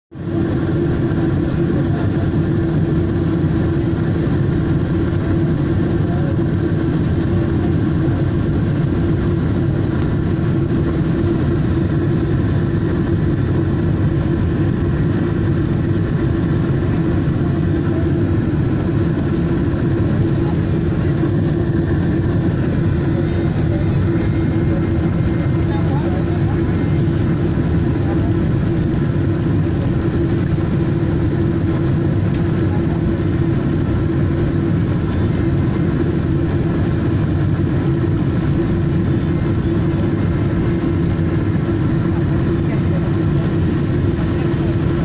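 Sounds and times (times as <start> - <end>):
jet engine cabin drone: 0.1 - 45.0
steady low hum: 0.2 - 45.0.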